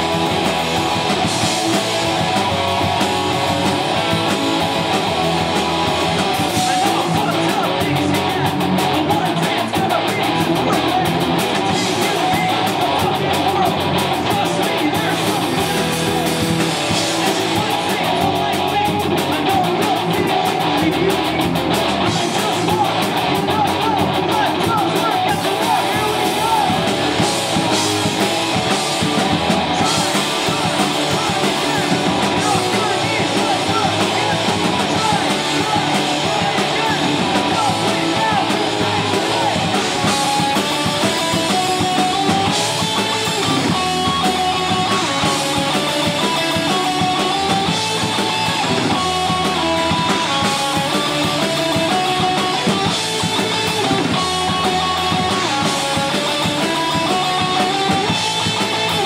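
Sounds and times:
punk rock band playing: 0:00.0 - 0:59.0.

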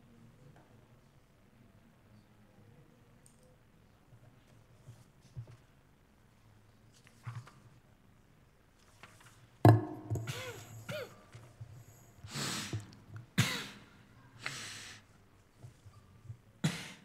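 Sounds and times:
person clearing throat: 0:10.2 - 0:11.3, 0:13.4 - 0:13.9, 0:16.6 - 0:17.0
person coughing: 0:10.2 - 0:11.3, 0:13.4 - 0:13.9
person breathing out heavily: 0:12.2 - 0:12.9.

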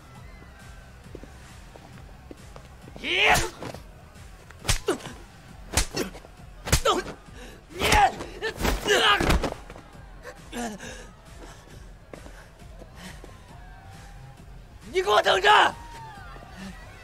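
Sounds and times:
punch impacts: 0:03.2 - 0:03.8, 0:04.6 - 0:05.1, 0:05.7 - 0:07.2
men grunting and yelling: 0:04.7 - 0:13.8, 0:14.9 - 0:17.0.

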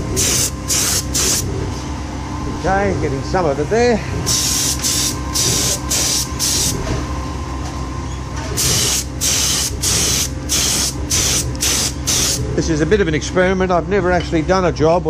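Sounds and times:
spray gun hissing bursts: 0:00.2 - 0:01.4, 0:04.3 - 0:06.7, 0:08.6 - 0:12.4.

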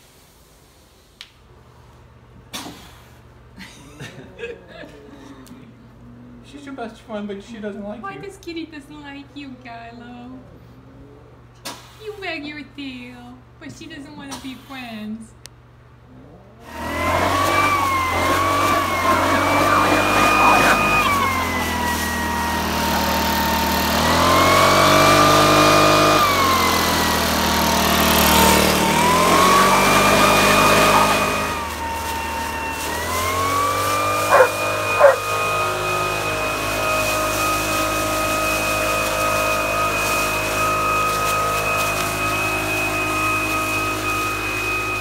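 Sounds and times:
leaf blower whining: 0:16.6 - 0:45.0
dog barking: 0:17.7 - 0:21.8, 0:29.2 - 0:31.4, 0:34.2 - 0:35.3.

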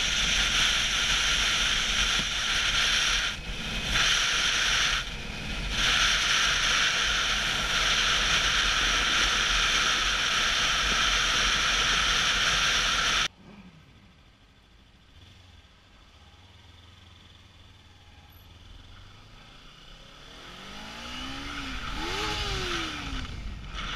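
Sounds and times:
wind rushing over camera: 0:00.0 - 0:13.3.

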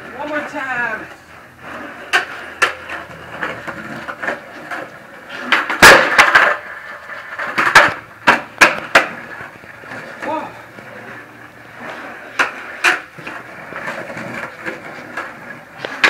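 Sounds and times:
skateboard deck clattering on concrete: 0:00.0 - 0:16.0
skateboard wheels rolling on concrete: 0:00.0 - 0:16.0
skateboard tail pop: 0:05.4 - 0:06.6, 0:07.4 - 0:09.2.

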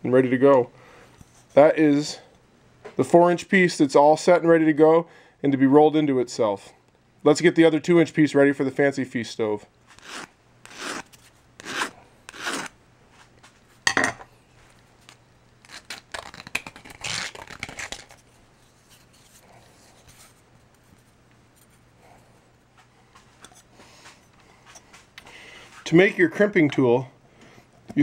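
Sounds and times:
metal file scraping metal: 0:10.0 - 0:12.7.

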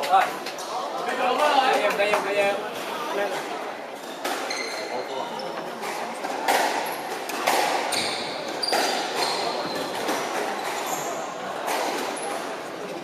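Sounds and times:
shoe squeaks on court floor: 0:04.4 - 0:05.6, 0:07.9 - 0:11.4
squash ball smacking rackets and walls: 0:05.8 - 0:12.6.

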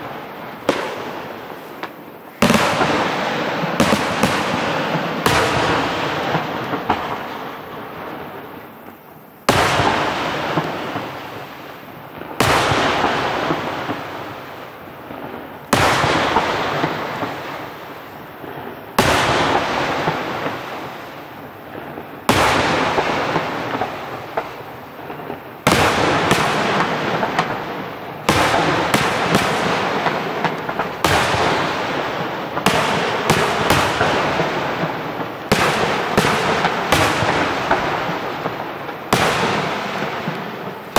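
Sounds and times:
firework shells bursting: 0:00.0 - 0:07.2.

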